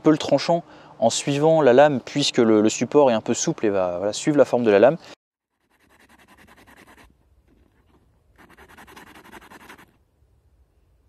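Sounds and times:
knife scratching on abrasive paper: 5.5s - 10.0s.

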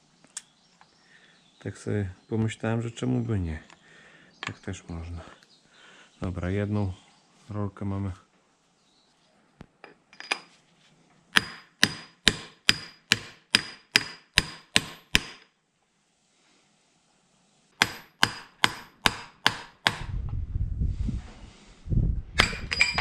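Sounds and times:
low rumbling handling noise: 20.0s - 23.0s.

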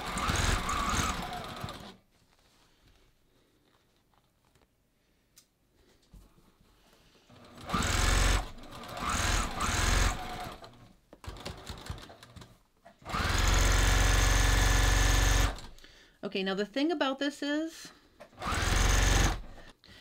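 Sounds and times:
sewing machine stitching: 0.0s - 2.0s, 7.3s - 15.8s, 18.3s - 19.7s.

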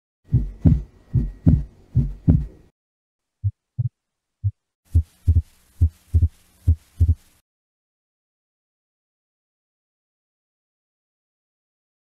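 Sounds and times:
heartbeat thumps: 0.3s - 2.7s, 3.4s - 7.3s.

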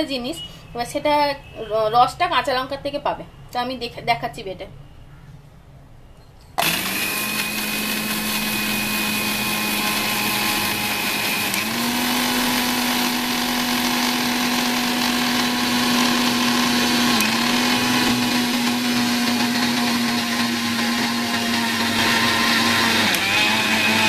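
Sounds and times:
mixer grinder motor whining: 6.6s - 24.0s.

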